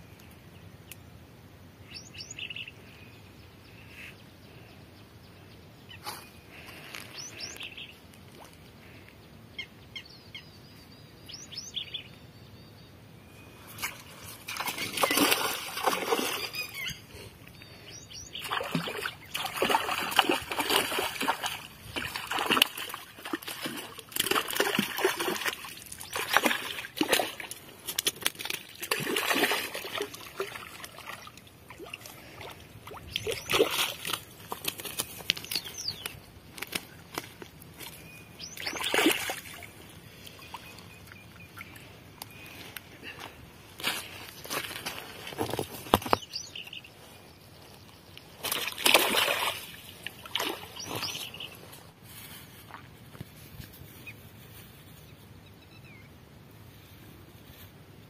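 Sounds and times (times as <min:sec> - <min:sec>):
river water splashing: 0:13.8 - 0:16.8, 0:18.1 - 0:41.9, 0:48.4 - 0:51.7.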